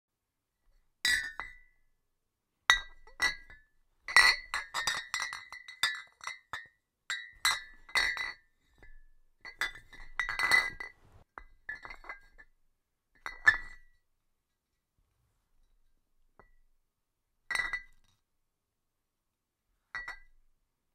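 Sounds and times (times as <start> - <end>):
glass bottle clinking: 9.4 - 11.0.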